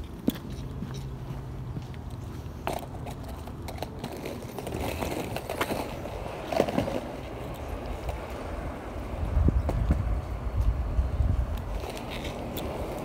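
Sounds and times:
skateboard wheels rolling on asphalt: 0.0s - 13.0s
skateboard clacks: 2.7s - 13.0s.

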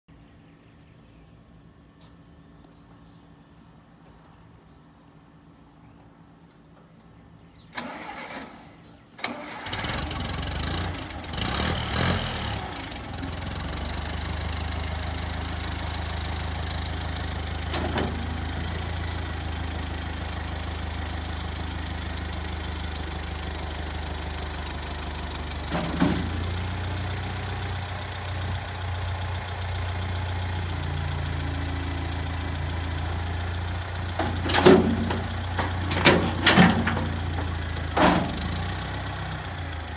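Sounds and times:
tractor engine starting and idling: 7.6s - 39.9s
engine knocks: 17.5s - 19.6s, 25.5s - 27.7s, 32.4s - 39.8s.

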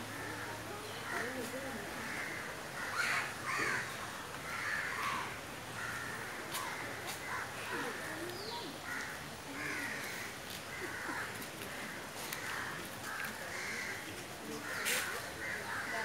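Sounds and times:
crows cawing: 2.0s - 8.1s, 8.8s - 16.0s.

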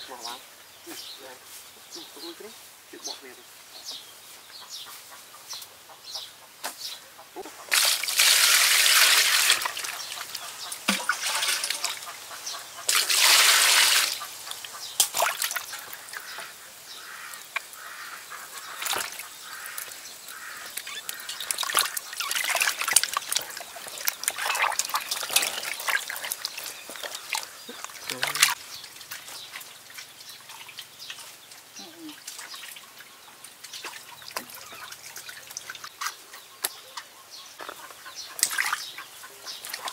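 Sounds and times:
water splashing in metal basin: 7.7s - 16.4s, 17.3s - 35.9s, 38.4s - 38.9s, 39.6s - 39.9s
rushes of splashing water: 7.7s - 36.0s
small wet slaps: 15.0s - 15.7s.

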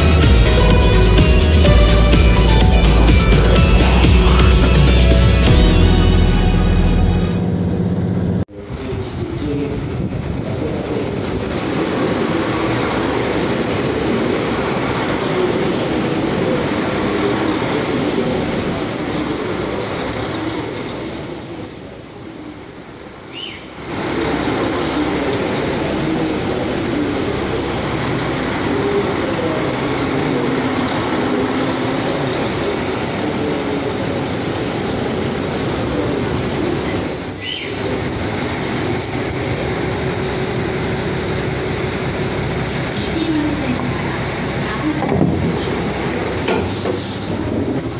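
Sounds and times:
train wheels rumbling on rails: 0.0s - 47.9s
high wheel squeals: 16.9s - 26.5s, 27.2s - 43.4s.

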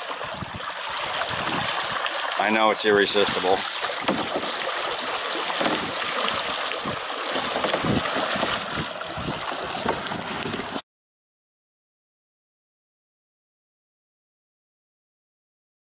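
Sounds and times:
paddle splashing water: 0.0s - 10.8s.

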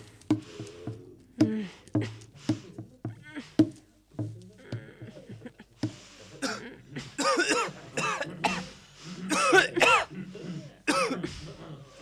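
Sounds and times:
person coughing and hacking: 6.4s - 11.3s.

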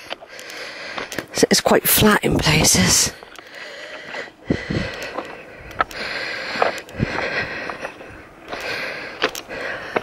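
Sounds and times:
footsteps crunching on pebbles: 4.0s - 10.0s.

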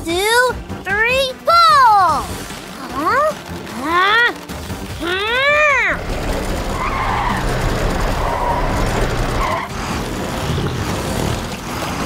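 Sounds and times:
wheels spinning and skidding: 2.3s - 12.0s
truck engines rumbling: 5.0s - 12.0s.

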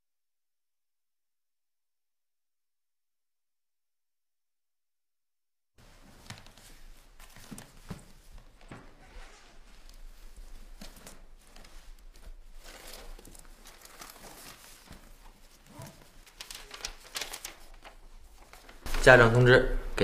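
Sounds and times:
cloth and paper rustling: 5.8s - 20.0s.

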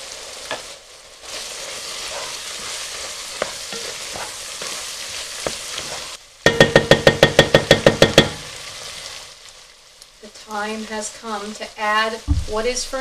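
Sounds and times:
wooden spatula stirring and scraping: 0.0s - 6.2s
food sizzling in a pot: 0.0s - 13.0s
fast loud ringing knocks: 6.5s - 8.4s.

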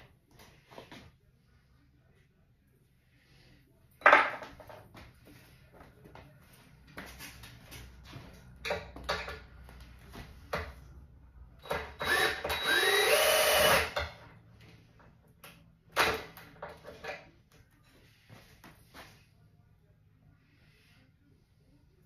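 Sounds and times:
cordless drill into wood: 11.6s - 14.0s.

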